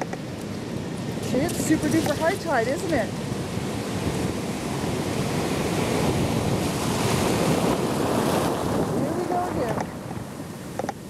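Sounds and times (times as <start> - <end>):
ocean surf breaking: 0.0 - 11.0
wind buffeting microphone: 0.0 - 11.0.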